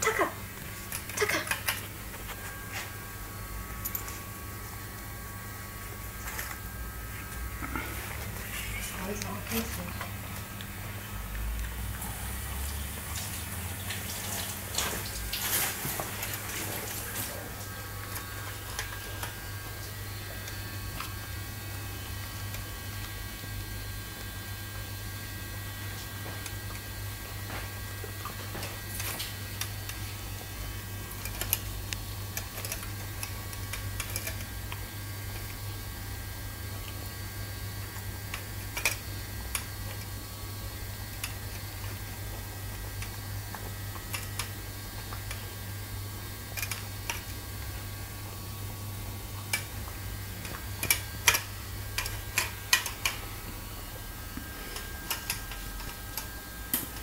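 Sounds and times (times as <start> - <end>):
low hum: 0.0 - 34.4.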